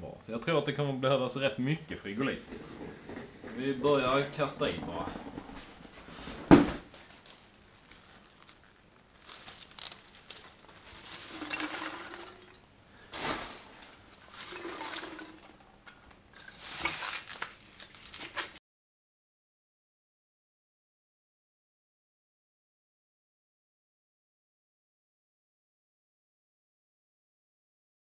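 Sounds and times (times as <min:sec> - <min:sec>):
foam crinkling against glass: 0:06.9 - 0:18.6.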